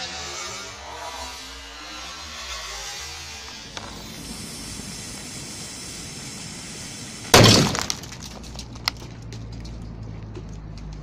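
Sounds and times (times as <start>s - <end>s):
fuse hissing: 3.1s - 8.0s
grenade blast: 3.8s - 8.4s
debris clicking as it lands: 7.3s - 9.8s.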